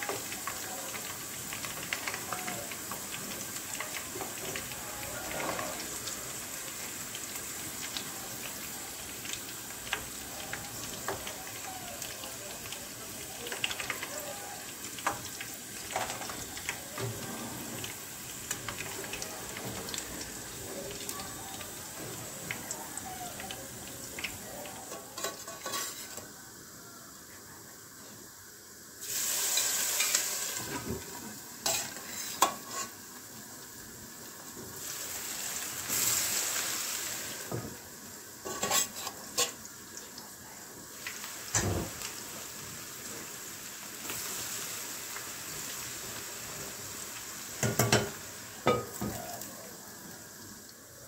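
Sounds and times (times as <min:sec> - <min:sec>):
fries sizzling in hot oil: 0:00.0 - 0:51.0
metal skimmer scraping pan: 0:25.2 - 0:26.2, 0:31.7 - 0:33.0, 0:38.5 - 0:39.6.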